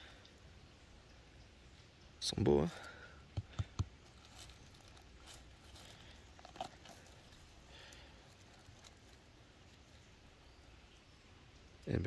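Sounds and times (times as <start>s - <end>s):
rustling of leaf litter: 4.0s - 11.1s.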